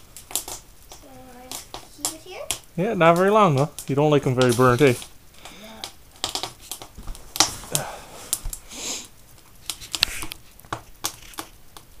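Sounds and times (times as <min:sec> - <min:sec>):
sharp snaps of burning wood: 0:00.0 - 0:12.0
wood fire crackling: 0:00.0 - 0:12.0.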